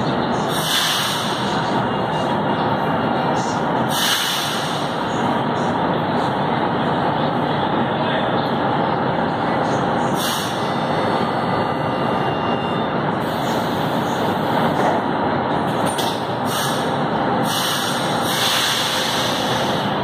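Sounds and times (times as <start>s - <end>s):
train doors closing: 0.0s - 2.4s, 3.4s - 5.2s, 10.0s - 20.0s
train rumble: 0.0s - 20.0s
air hiss bursts: 3.9s - 4.9s, 17.4s - 19.7s.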